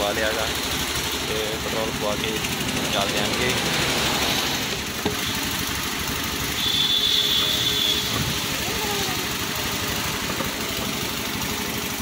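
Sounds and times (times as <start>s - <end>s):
scooter engine idling: 0.0s - 12.0s.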